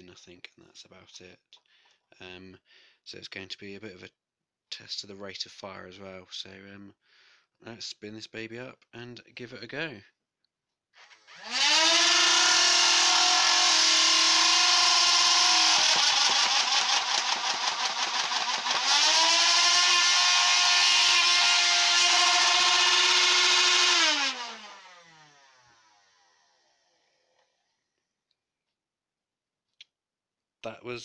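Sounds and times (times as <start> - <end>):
flywheel motors whining: 11.1 - 25.6
toy blaster firing darts: 13.7 - 24.8.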